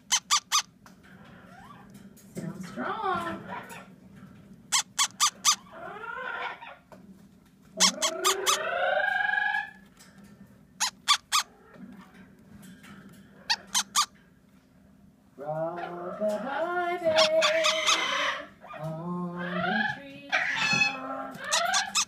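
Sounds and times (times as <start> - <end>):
parrot chick begging calls: 0.0 - 0.7, 4.7 - 5.7, 7.8 - 8.8, 10.8 - 11.5, 13.5 - 14.1, 17.1 - 18.8, 19.5 - 22.0.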